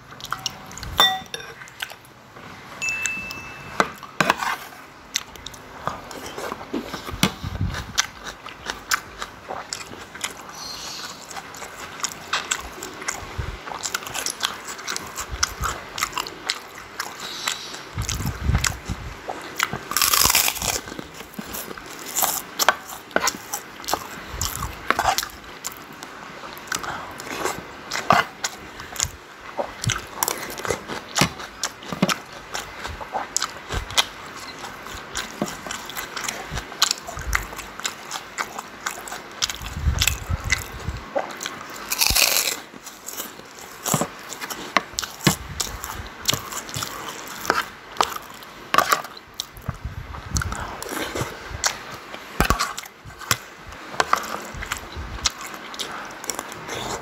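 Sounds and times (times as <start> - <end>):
person chewing food: 0.0 - 57.0
crisp cracker crunch: 19.4 - 29.1, 29.8 - 49.6.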